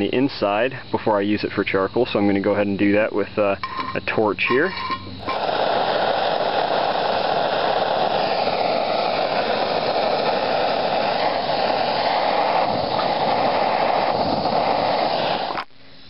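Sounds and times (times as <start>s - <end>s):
gas torch flame hissing: 4.4s - 15.7s.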